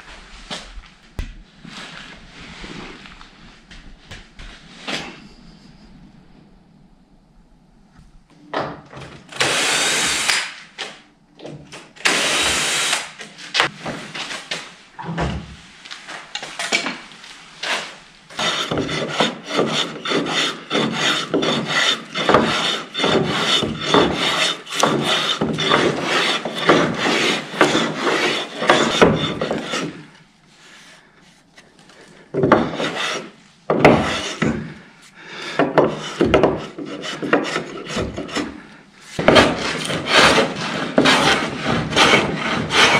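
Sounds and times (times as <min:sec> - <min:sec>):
hand tool stroking wood: 0:17.6 - 0:31.7, 0:32.3 - 0:42.9.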